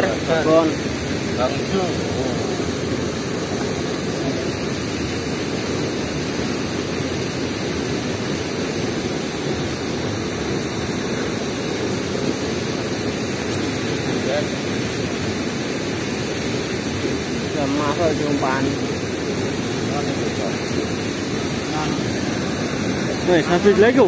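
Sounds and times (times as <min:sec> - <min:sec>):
water rushing through sluice gates: 0:00.0 - 0:24.0.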